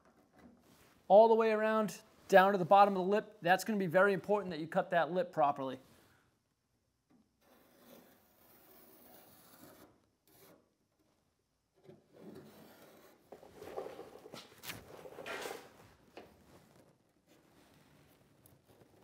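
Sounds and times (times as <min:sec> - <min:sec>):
marker scratching on metal: 0:07.4 - 0:10.7.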